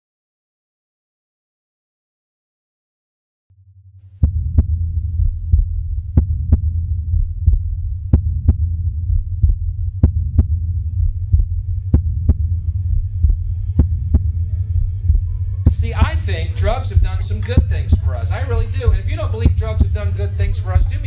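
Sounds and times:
low steady hum: 0:04.1 - 0:21.0
heartbeat thumps: 0:04.2 - 0:21.0.

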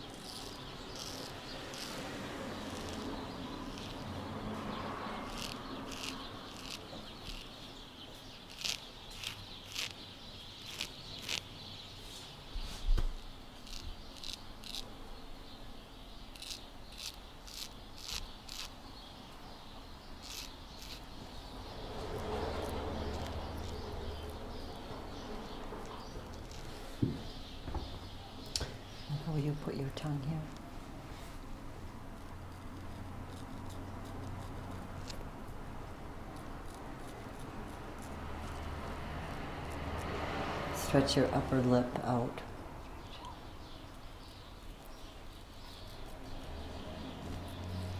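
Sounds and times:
razor scraping stubble: 0:00.0 - 0:11.7, 0:12.6 - 0:15.0, 0:16.2 - 0:18.8, 0:20.0 - 0:27.6, 0:28.5 - 0:42.0, 0:43.0 - 0:47.9.

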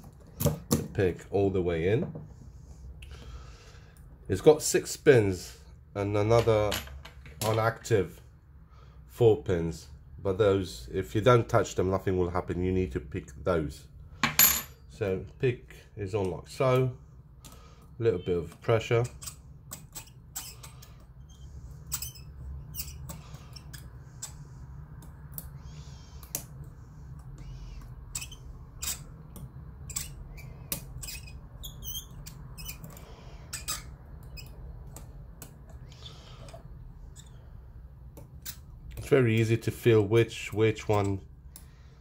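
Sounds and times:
steady low hum: 0:07.9 - 0:42.0
lock pick clicks and scrapes: 0:19.0 - 0:24.4, 0:28.1 - 0:35.6.

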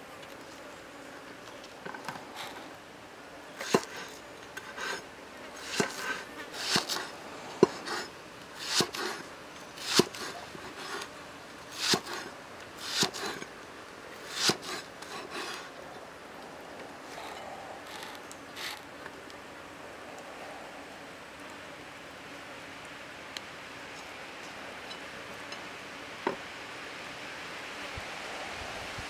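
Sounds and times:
cleaver slicing leek: 0:05.6 - 0:08.0, 0:08.6 - 0:09.2, 0:09.8 - 0:11.1, 0:11.7 - 0:12.2, 0:12.8 - 0:13.4, 0:14.3 - 0:15.6.

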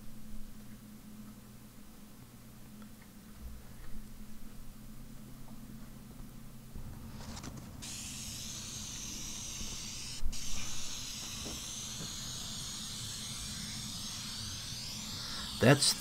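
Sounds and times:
aerosol can spraying: 0:07.8 - 0:16.0.

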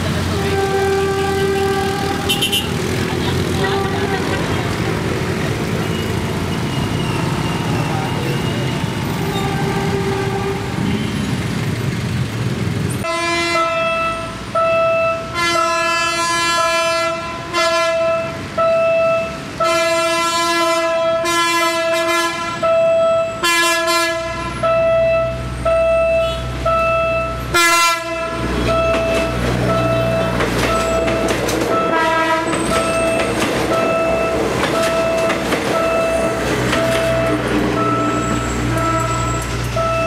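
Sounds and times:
train horn blasts: 0:00.2 - 0:02.8, 0:03.6 - 0:04.4, 0:08.6 - 0:11.2, 0:13.0 - 0:18.5, 0:19.1 - 0:25.4, 0:27.5 - 0:29.4, 0:30.6 - 0:34.4, 0:35.7 - 0:40.0.

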